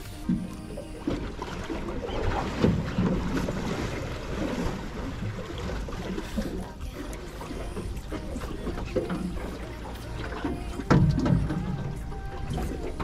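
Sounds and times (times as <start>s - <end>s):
water lapping against hull: 0.0s - 13.0s.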